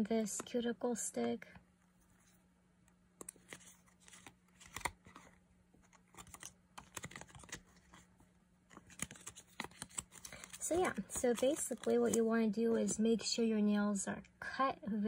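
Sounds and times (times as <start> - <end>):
paper crackling: 3.2 - 8.1, 8.7 - 13.0.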